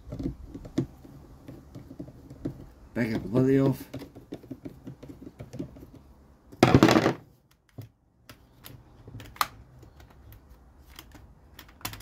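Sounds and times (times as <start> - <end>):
plastic parts clicking: 7.4 - 12.0.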